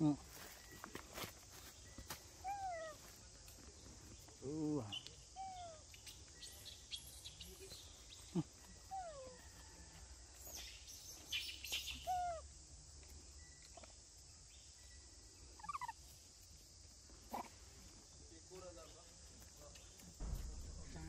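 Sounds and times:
faint forest background: 0.0 - 21.0
sharp knock: 20.2 - 21.0.

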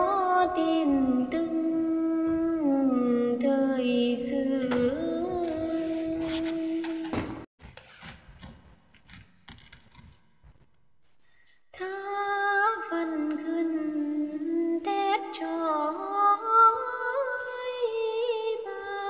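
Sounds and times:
woman singing folk melody: 0.0 - 7.0, 11.8 - 19.0.

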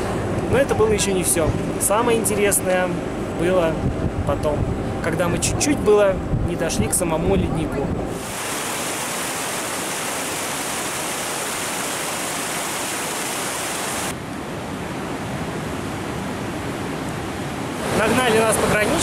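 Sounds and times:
mountain stream rushing: 8.1 - 19.0.

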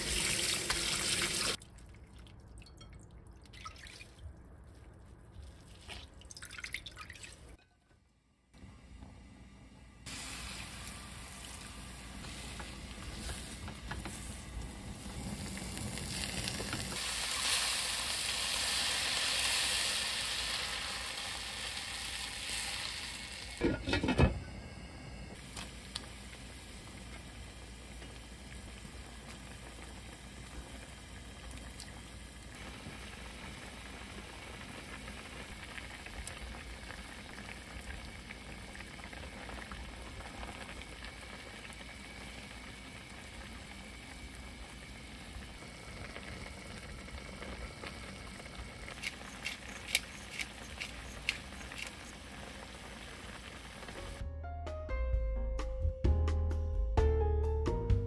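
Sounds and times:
soup bubbling at a boil: 10.0 - 23.7, 25.3 - 54.2
fish sizzling in oil: 10.1 - 23.7, 25.4 - 54.2.

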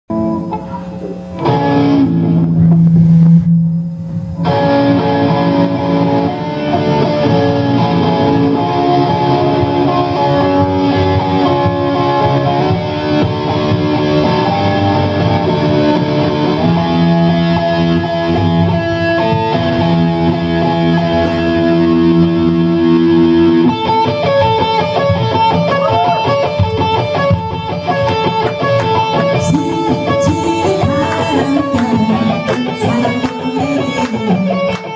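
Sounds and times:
electric guitar lead: 0.1 - 34.9
rock band playing a ballad: 4.3 - 34.9
woman singing: 29.3 - 34.8.

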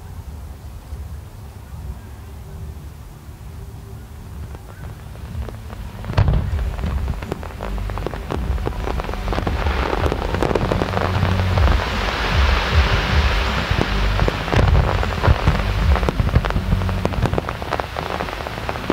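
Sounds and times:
fireworks crackling: 0.0 - 18.9
firework bang: 4.4 - 18.9.

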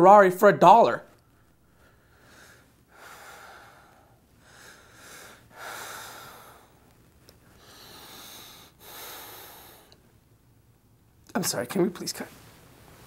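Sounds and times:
person breathing hard: 1.6 - 10.0.

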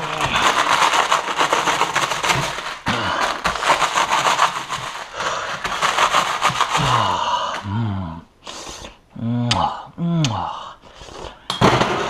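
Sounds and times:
knife crunching dry noodles: 0.0 - 7.2
plastic packets crinkling: 0.0 - 7.2.

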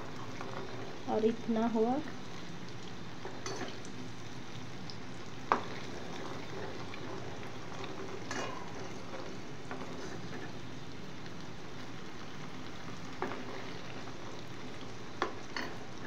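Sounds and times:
ghee sizzling in a pot: 0.0 - 16.0
metal ladle scraping a pot: 7.7 - 10.5.

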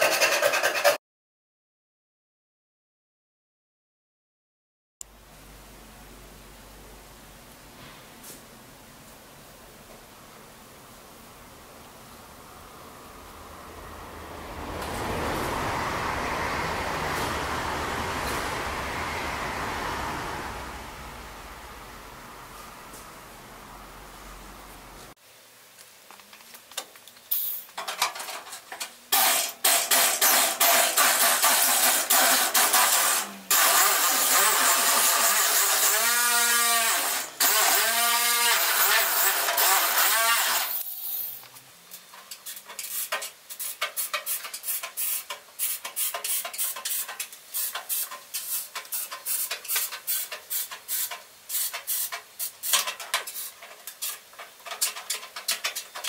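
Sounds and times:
angle grinder on steel: 0.0 - 1.0, 29.2 - 41.4.

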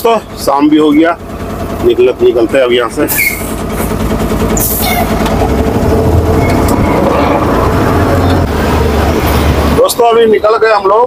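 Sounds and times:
diesel truck engine rumble: 0.0 - 11.0
cab rattling: 1.8 - 8.5.

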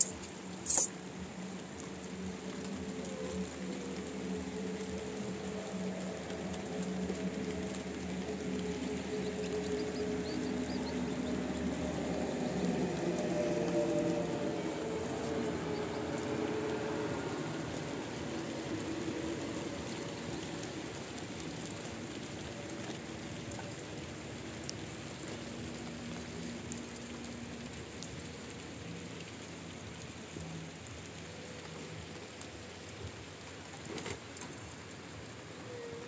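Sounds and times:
steady rain falling: 0.0 - 36.0.

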